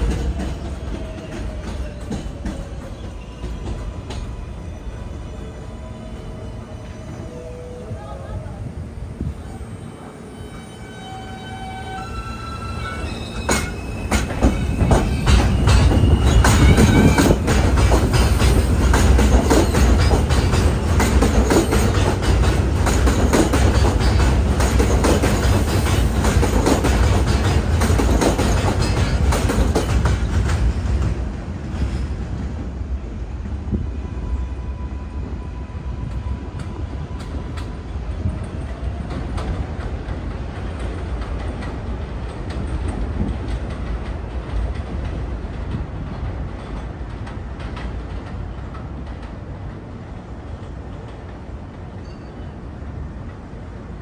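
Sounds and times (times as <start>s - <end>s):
subway train rumble: 0.0s - 54.0s.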